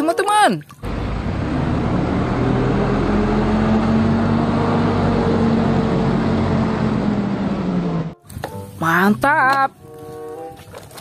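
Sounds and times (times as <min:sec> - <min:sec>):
bus diesel engine driving past: 0:00.8 - 0:08.2.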